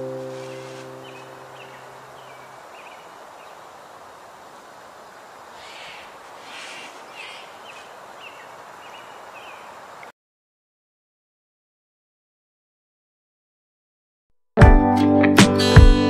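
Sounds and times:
steady outdoor hiss: 0:00.0 - 0:10.1
small bird chirping: 0:00.3 - 0:10.1.

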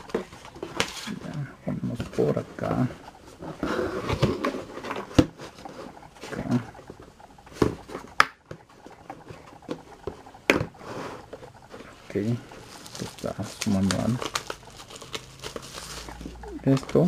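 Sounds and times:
plastic case scraping on wood: 0:03.0 - 0:06.0.

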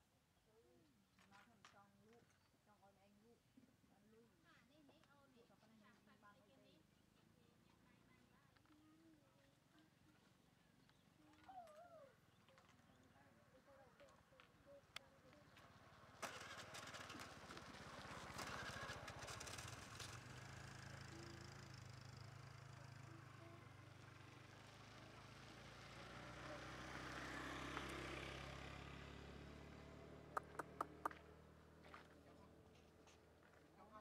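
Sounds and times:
faint low engine hum: 0:00.0 - 0:34.0
sharp clicks: 0:30.4 - 0:31.2.

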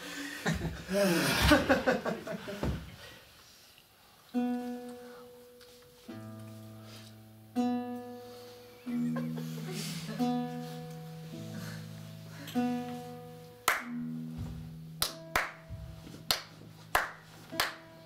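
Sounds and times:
acoustic guitar chords: 0:04.4 - 0:18.0
sharp hand claps: 0:13.6 - 0:14.0, 0:15.0 - 0:15.7, 0:16.3 - 0:17.9.

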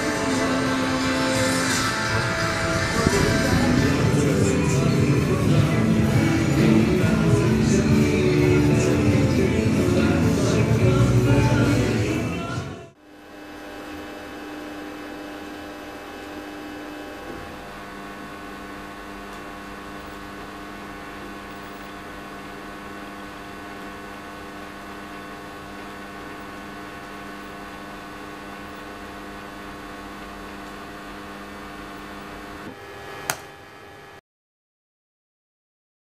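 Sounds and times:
steady hum of held tones: 0:00.0 - 0:34.2
sharp click: 0:33.3 - 0:33.5.

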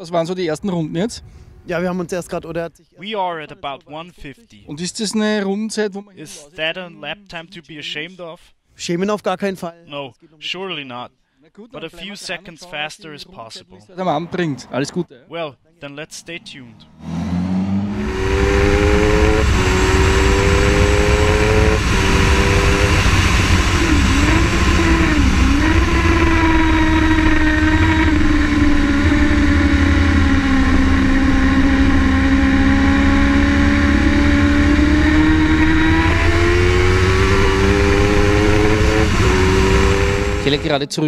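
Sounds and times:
motorcycle engine at hard throttle: 0:17.0 - 0:40.7
heavy wind rush: 0:17.8 - 0:32.6.

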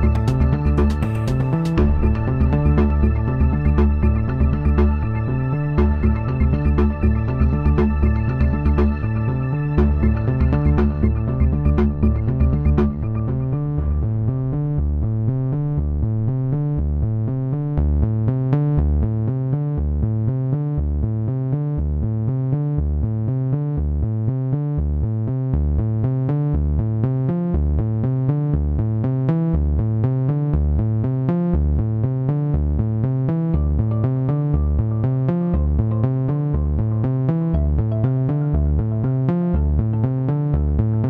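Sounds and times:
drum machine beat: 0:00.0 - 0:13.5
repeating bass line: 0:00.0 - 0:41.0
synthesizer: 0:00.0 - 0:41.0.

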